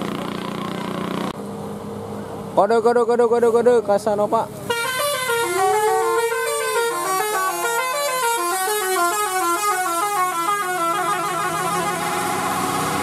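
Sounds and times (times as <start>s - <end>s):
bus musical horn melody: 4.7s - 13.0s.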